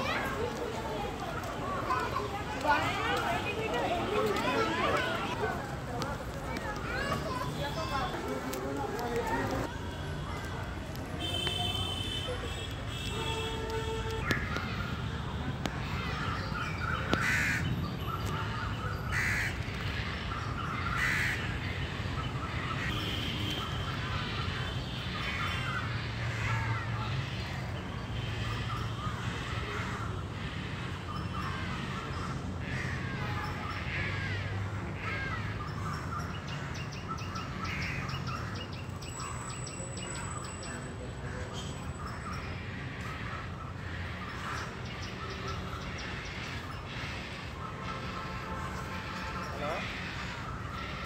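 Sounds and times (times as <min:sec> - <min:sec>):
crows cawing: 0:15.7 - 0:21.8, 0:22.5 - 0:27.6, 0:28.2 - 0:38.6, 0:41.3 - 0:51.0.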